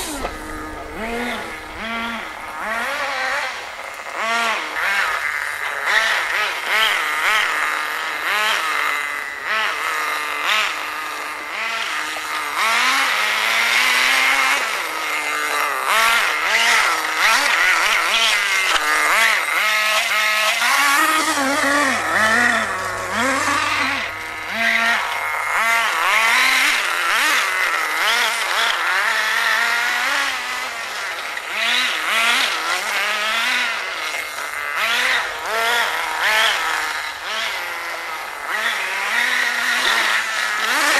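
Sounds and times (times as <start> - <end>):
rc buggy engine revving: 0.0 - 40.9.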